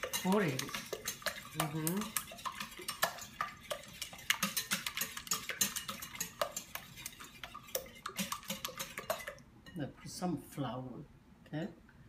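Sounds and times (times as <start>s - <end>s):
fork clinking on glass bowl: 0.0s - 7.2s
wet stirring of eggs: 0.0s - 9.9s.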